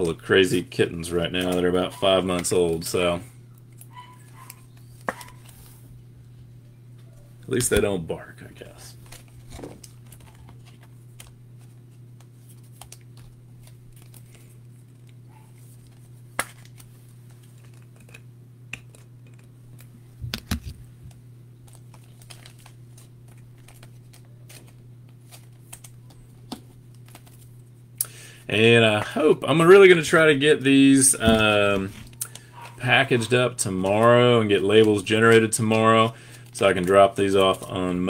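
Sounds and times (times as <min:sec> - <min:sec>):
plastic card sleeves clicking: 0:03.7 - 0:05.6.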